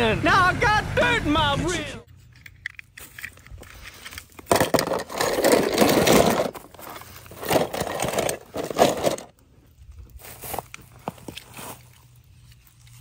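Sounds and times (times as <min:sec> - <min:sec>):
toy cars and plastic tub handled: 0:02.1 - 0:09.4.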